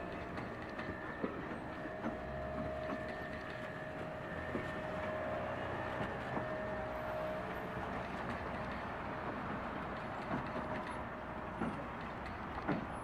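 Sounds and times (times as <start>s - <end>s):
clicks over rail joints: 0.0s - 4.8s, 7.8s - 13.0s
train wheels rumbling: 0.0s - 13.0s.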